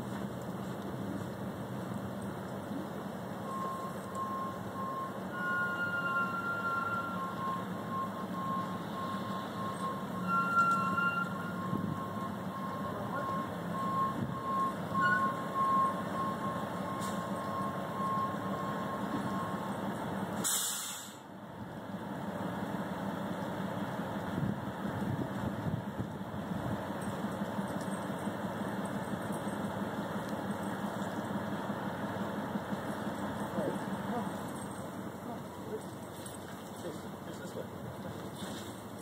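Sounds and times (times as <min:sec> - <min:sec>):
diesel engine running: 0:00.0 - 0:39.0
truck reversing alarm beeps: 0:00.0 - 0:39.0
air brakes hissing: 0:08.6 - 0:11.9, 0:16.8 - 0:17.5, 0:20.3 - 0:21.3.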